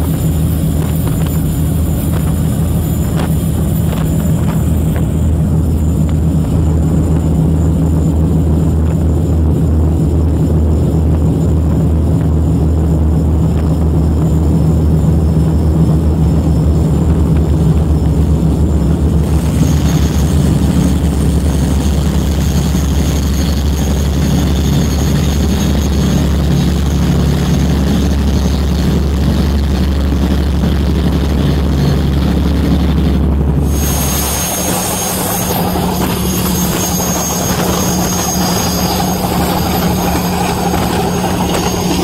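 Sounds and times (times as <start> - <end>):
diesel engines droning: 0.0 - 42.0
wind: 0.0 - 42.0
rushing water: 33.6 - 42.0.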